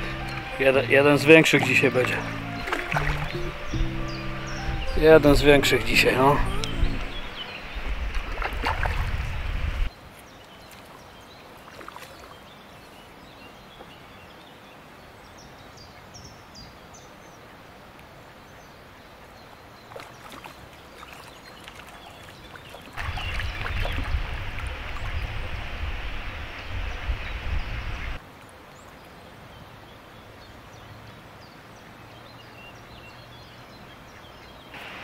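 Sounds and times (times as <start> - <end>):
wind gusting on microphone: 2.3 - 9.9, 23.0 - 28.2.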